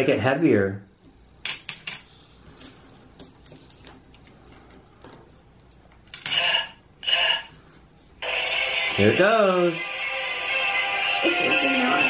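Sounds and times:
coins clinking on plastic: 6.1 - 6.7.

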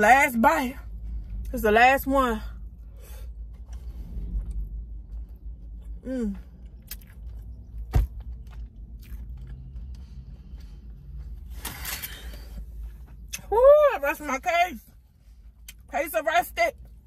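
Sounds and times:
person chewing crunchy food: 3.4 - 13.4.

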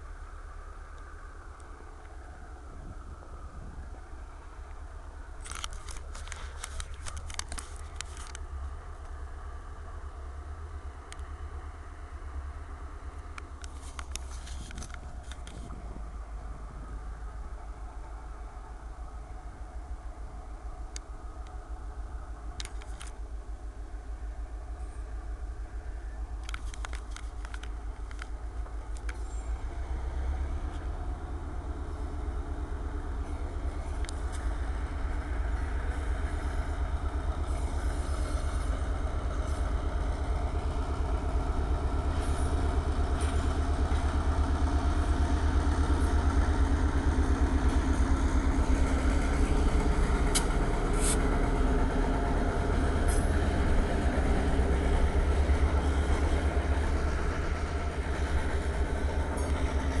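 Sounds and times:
freight train rumbling past: 0.0 - 60.0
sharp clicks: 26.4 - 29.3.

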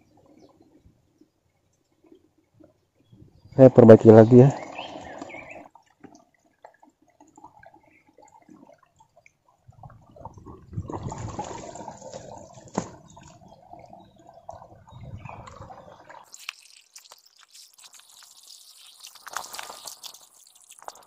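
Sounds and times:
hands splashing in water: 16.2 - 21.0.

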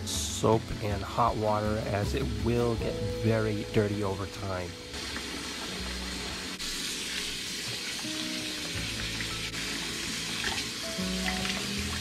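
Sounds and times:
faucet running into sink: 4.9 - 12.0.

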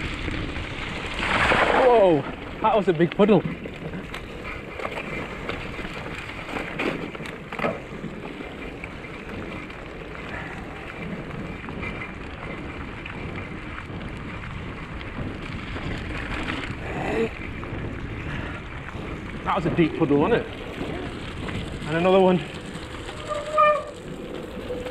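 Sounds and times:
bicycle tyres on slushy track: 0.0 - 24.9
bike knocking over rough ground: 0.0 - 24.9
wind buffeting microphone: 0.0 - 24.9
bike splashing through puddle: 1.0 - 2.3.

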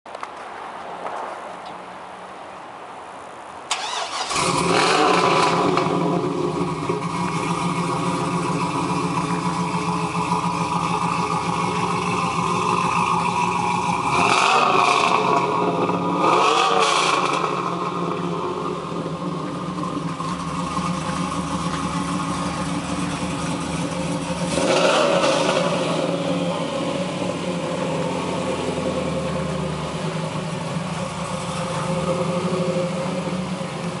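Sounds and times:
car engine idling and revving: 3.7 - 34.0.

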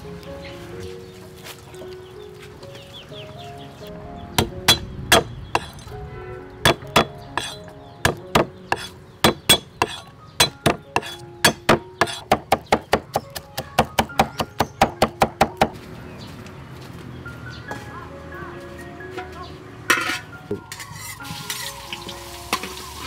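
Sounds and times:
cleaver chopping on wooden board: 4.4 - 5.8, 6.7 - 15.8.

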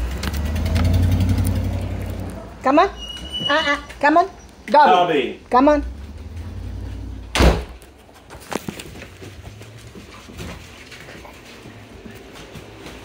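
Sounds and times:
door shutting: 7.2 - 7.8.

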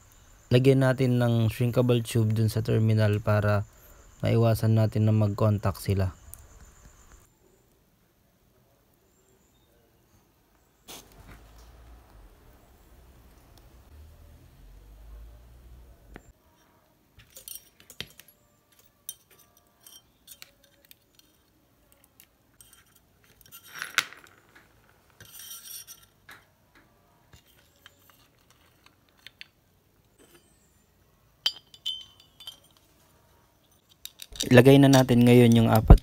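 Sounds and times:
small metal clicks and clinks: 16.6 - 26.5, 27.3 - 30.5, 31.4 - 33.0, 33.6 - 36.0
metal scraping: 22.6 - 26.5.

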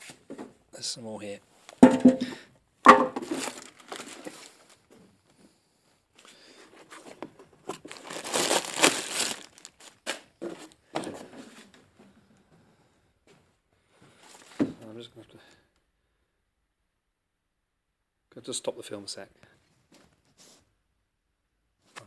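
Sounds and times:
knocks on containers: 1.8 - 3.3
plastic crinkling: 3.2 - 4.9, 7.0 - 10.3.

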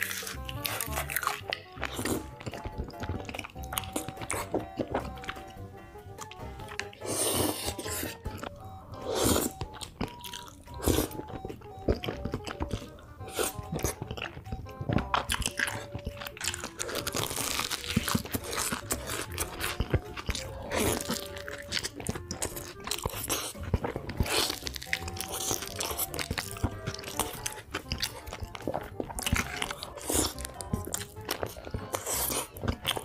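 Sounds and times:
slurping noodles: 0.0 - 2.4, 6.8 - 8.3, 9.0 - 9.6, 20.0 - 33.0
background music with held notes: 0.0 - 33.0
crunchy bites and chewing: 0.0 - 33.0.

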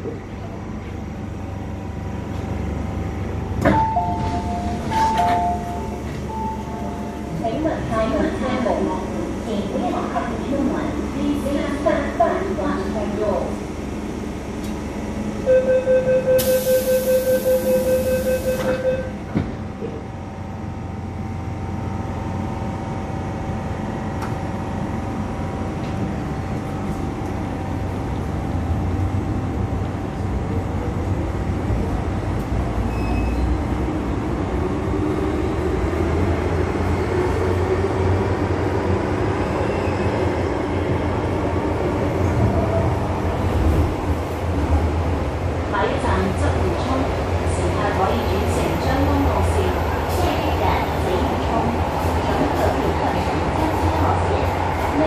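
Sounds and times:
train wheels rumbling in tunnel: 0.0 - 55.0
train doors shutting: 3.5 - 7.4, 14.5 - 20.0
door-closing warning beeps: 3.7 - 7.0, 15.5 - 19.1, 32.9 - 33.6.

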